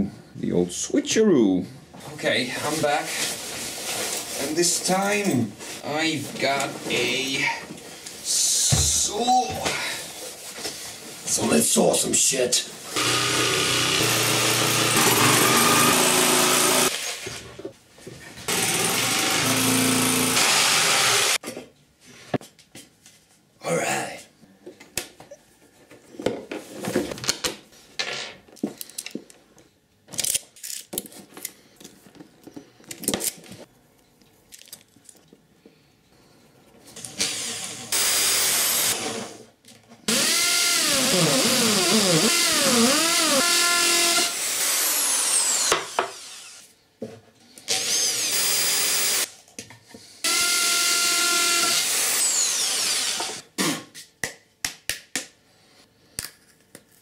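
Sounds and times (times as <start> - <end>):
electric drill boring into wood: 12.9 - 17.2, 18.5 - 21.4, 37.1 - 39.3, 40.1 - 46.6, 47.7 - 49.3, 50.2 - 53.4.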